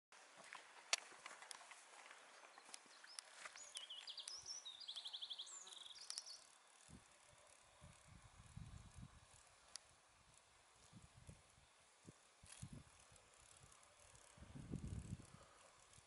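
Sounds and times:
small animal chirping and trilling: 2.5s - 8.6s
light clicks: 5.7s - 6.6s.

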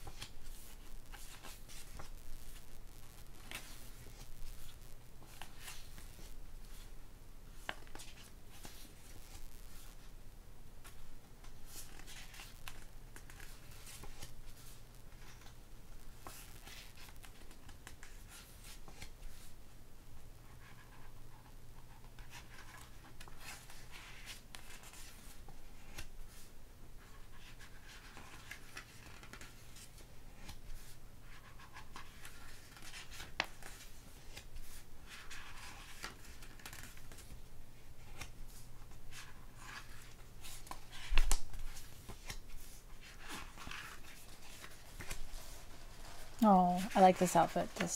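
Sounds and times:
paper pages rustling: 0.0s - 6.9s, 7.5s - 10.1s, 10.8s - 19.5s, 21.8s - 47.9s
faint low hum: 0.0s - 47.9s.

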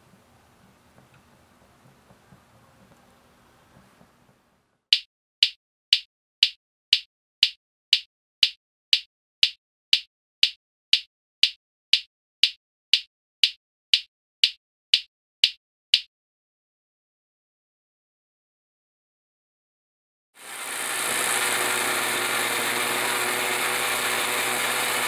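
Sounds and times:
sharp even ticking: 4.9s - 16.1s.

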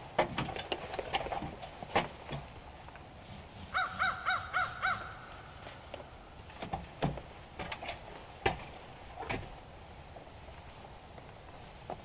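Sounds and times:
crow cawing: 3.8s - 5.4s.

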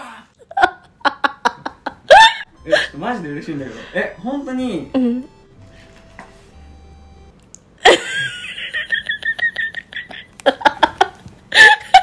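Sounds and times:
young man laughing: 0.0s - 3.0s, 7.8s - 12.0s.

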